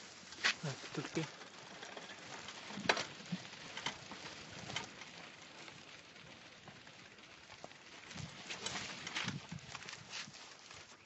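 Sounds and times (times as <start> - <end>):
faint outdoor hiss: 0.0 - 11.0
footsteps on dirt and stones: 0.2 - 1.2, 8.1 - 11.0.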